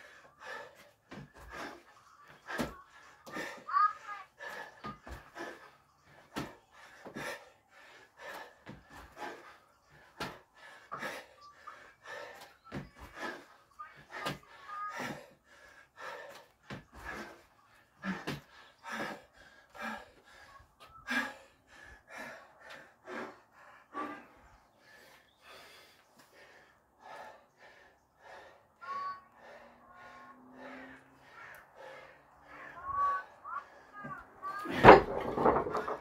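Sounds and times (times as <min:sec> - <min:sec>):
man breathing hard: 0:00.0 - 0:34.2.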